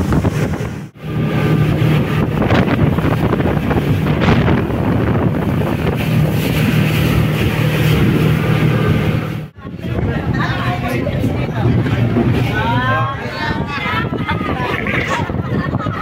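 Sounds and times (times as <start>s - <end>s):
boat engine humming: 0.0s - 16.0s
water rushing past hull: 0.0s - 16.0s
wind buffeting the microphone: 0.0s - 16.0s.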